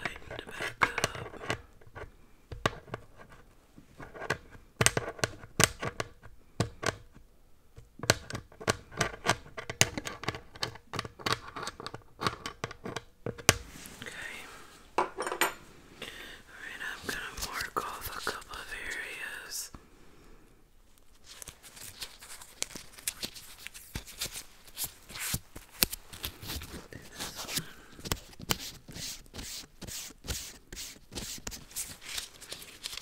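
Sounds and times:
scratching handling noise: 0:20.9 - 0:33.0.

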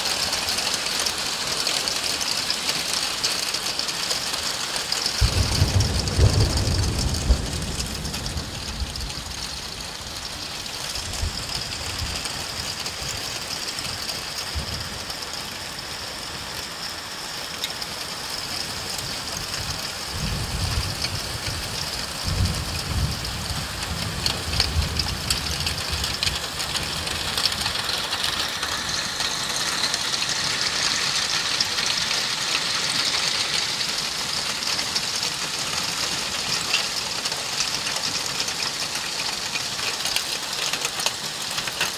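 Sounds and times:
hail and heavy rain pelting: 0:00.0 - 0:41.9
low rumbles: 0:05.2 - 0:12.9.

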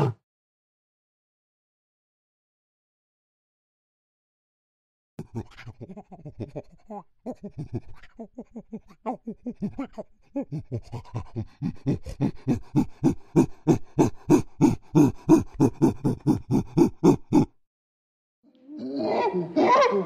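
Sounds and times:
chimpanzee pant-hoot calls: 0:05.2 - 0:17.5.

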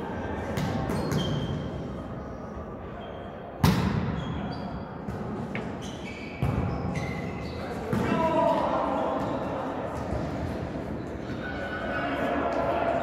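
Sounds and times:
shoes squeaking on court floor: 0:00.8 - 0:01.7, 0:04.1 - 0:04.9, 0:05.5 - 0:08.0.

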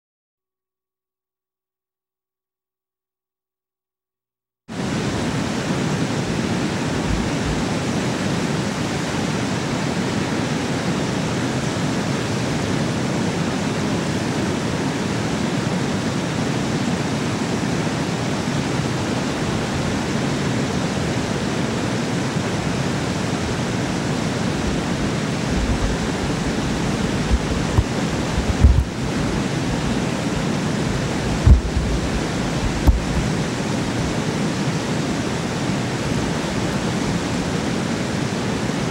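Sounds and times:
water roaring through spillway: 0:04.7 - 0:38.9
low thumps: 0:25.5 - 0:30.0, 0:30.9 - 0:33.3.

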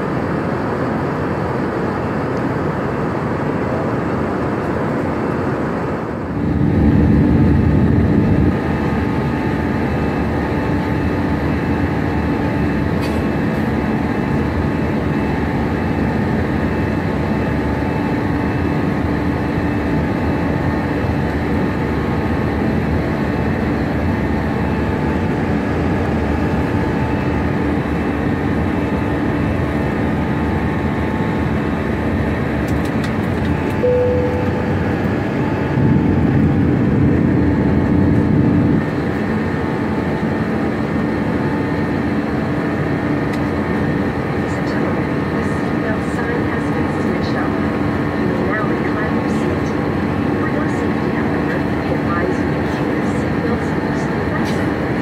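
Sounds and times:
jet engines droning in cabin: 0:00.0 - 0:55.0
low steady tone: 0:33.8 - 0:35.6.

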